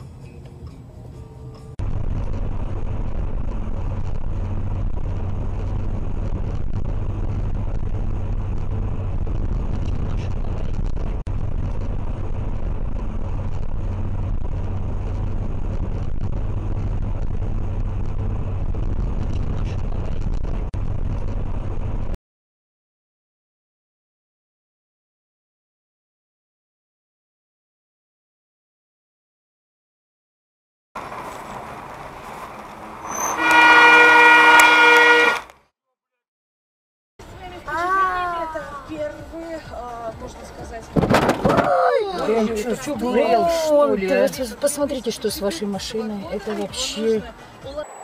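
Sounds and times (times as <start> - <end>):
car road and engine noise: 0.0 - 22.2, 31.0 - 35.6, 37.2 - 48.0.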